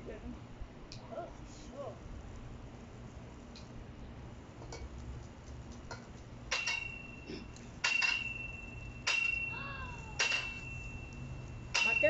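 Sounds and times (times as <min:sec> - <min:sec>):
metal tongs clinking on a pot: 0:05.9 - 0:12.0.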